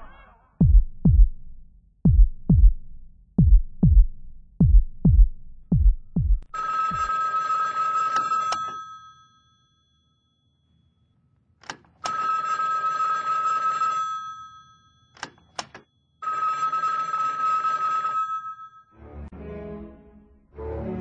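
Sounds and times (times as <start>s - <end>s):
heartbeat thumps: 0.0s - 7.1s
telephone ringing: 6.5s - 10.3s, 12.0s - 19.0s.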